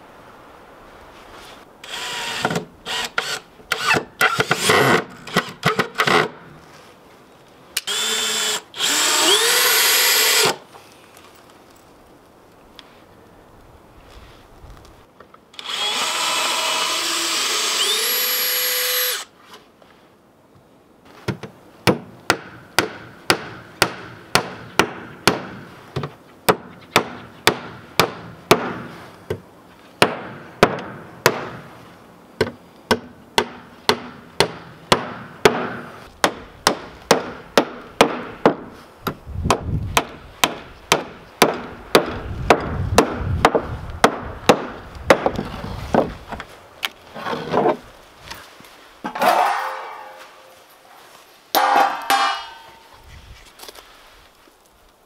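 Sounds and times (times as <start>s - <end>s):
cordless drill running: 7.9s - 10.5s, 15.6s - 19.3s
hammer striking wooden boards: 21.9s - 28.9s, 32.4s - 38.7s, 39.5s - 45.4s.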